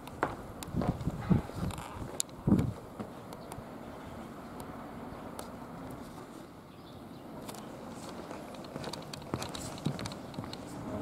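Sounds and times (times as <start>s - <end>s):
footsteps on wooden boards: 0.0s - 3.3s, 7.8s - 11.0s
outdoor background noise: 0.0s - 11.0s.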